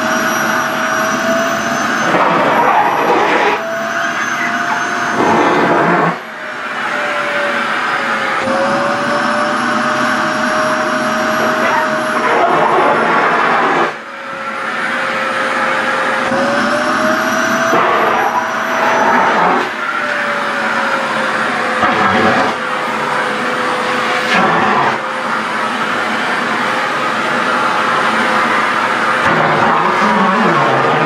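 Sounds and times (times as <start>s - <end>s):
vacuum cleaner running: 0.0s - 31.0s.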